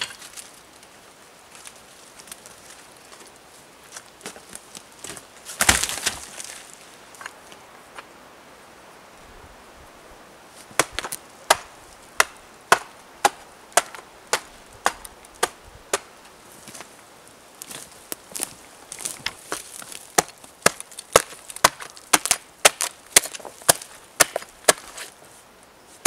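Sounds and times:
hatchet chopping log: 5.6s - 6.2s, 10.7s - 16.1s, 19.2s - 25.1s.

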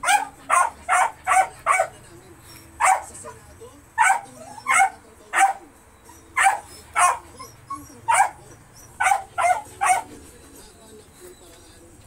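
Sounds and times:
dog barking: 0.0s - 2.0s, 2.8s - 3.4s, 4.0s - 5.7s, 6.4s - 10.2s.

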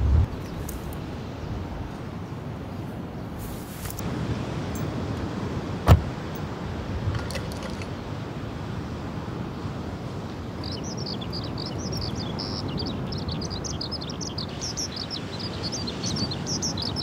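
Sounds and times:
small birds chirping: 10.4s - 17.0s.

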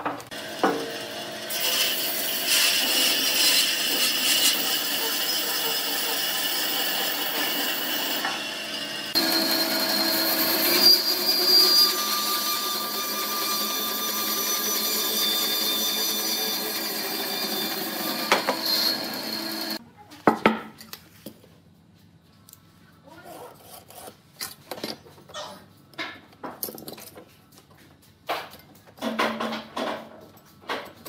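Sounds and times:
bandsaw cutting wood: 0.3s - 19.8s.

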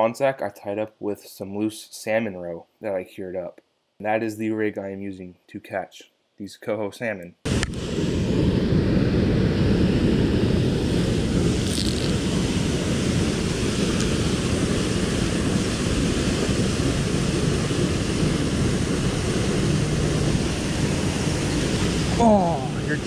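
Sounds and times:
wind buffeting microphone: 7.5s - 23.0s
river water rushing: 13.1s - 23.0s.

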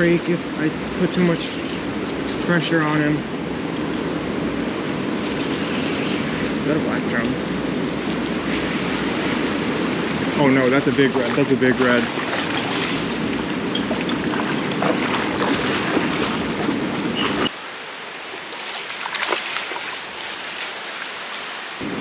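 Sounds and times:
wind on microphone: 0.0s - 17.6s
water splashing: 8.2s - 21.8s
water lapping: 8.4s - 21.8s.

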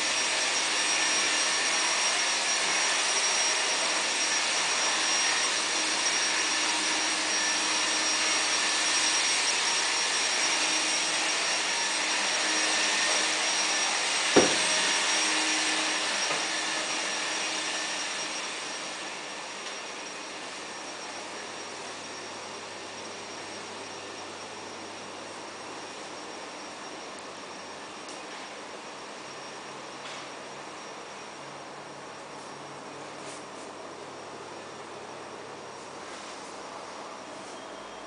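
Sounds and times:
loud rushing blower noise: 0.0s - 24.0s
wall bed knock: 14.4s - 14.7s.

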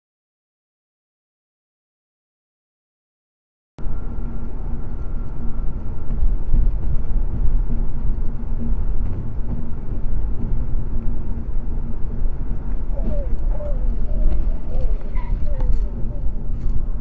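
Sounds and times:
road and tyre noise: 3.8s - 17.0s.

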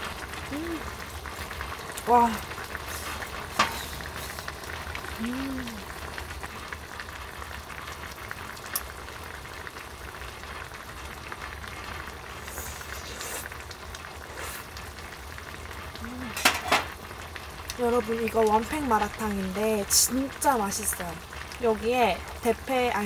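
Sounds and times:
pot bubbling: 0.0s - 23.0s.

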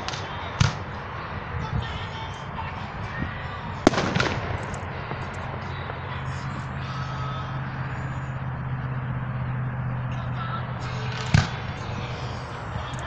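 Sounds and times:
steady low hum: 0.0s - 13.0s
firework mortar thump: 3.8s - 5.2s.

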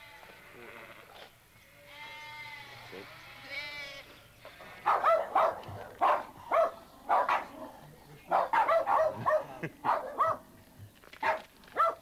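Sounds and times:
small dogs barking: 4.8s - 10.5s, 11.2s - 12.0s.

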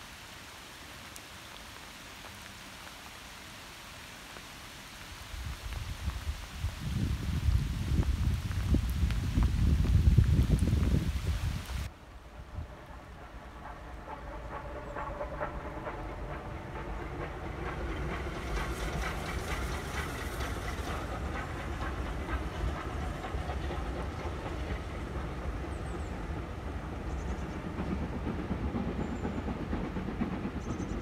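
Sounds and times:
steam train rumbling on rails: 5.4s - 31.0s
steam hiss: 13.3s - 31.0s.

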